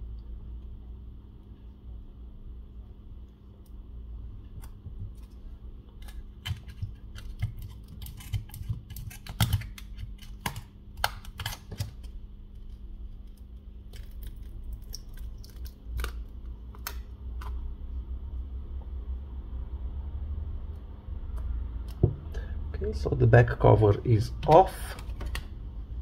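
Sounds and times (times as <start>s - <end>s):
plastic pick clicking and crackling: 6.0s - 12.1s.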